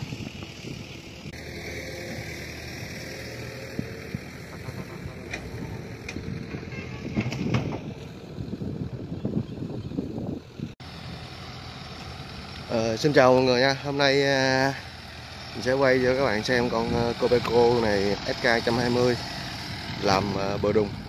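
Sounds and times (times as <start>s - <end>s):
wind on microphone: 0.0s - 1.4s, 2.1s - 10.8s
low rumble: 0.0s - 10.8s.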